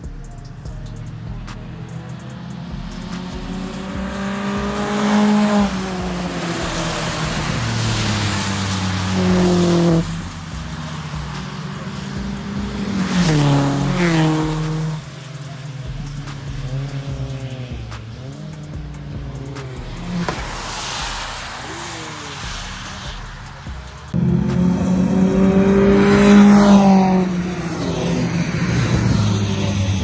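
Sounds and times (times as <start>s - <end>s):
race car engines revving: 0.0s - 30.0s
tyre spray hiss on wet track: 3.0s - 24.7s.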